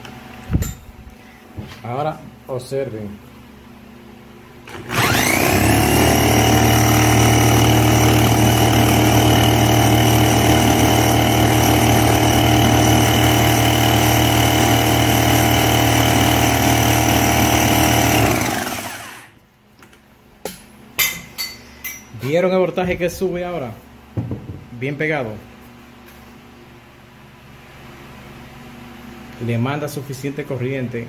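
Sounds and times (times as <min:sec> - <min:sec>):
electric drill whine and hum: 0:04.6 - 0:19.4.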